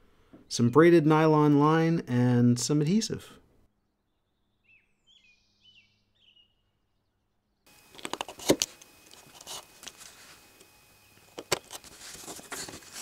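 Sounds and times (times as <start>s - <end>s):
faint bird chirps: 4.0s - 7.6s.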